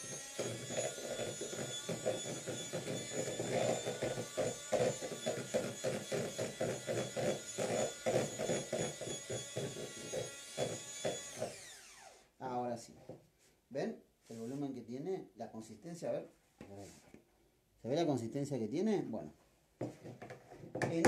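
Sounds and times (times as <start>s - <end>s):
electric hand mixer whining: 0.0s - 12.3s.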